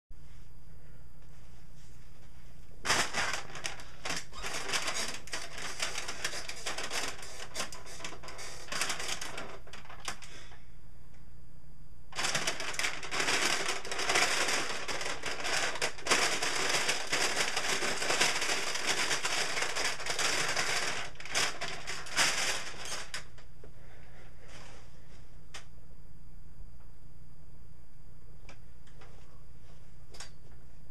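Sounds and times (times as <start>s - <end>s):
chip bag crinkling: 2.8s - 10.5s, 12.1s - 23.4s.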